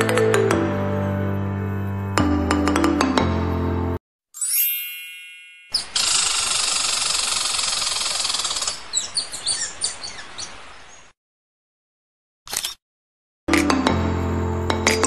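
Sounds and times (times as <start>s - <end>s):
chime ringing: 4.4s - 6.3s
bird chirps: 5.7s - 11.1s.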